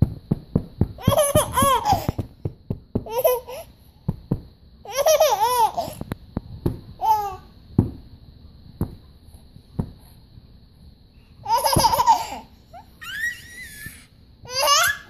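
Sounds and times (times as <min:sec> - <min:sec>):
baby giggling: 0:01.0 - 0:02.2, 0:03.1 - 0:03.7, 0:04.9 - 0:06.0, 0:11.4 - 0:13.4.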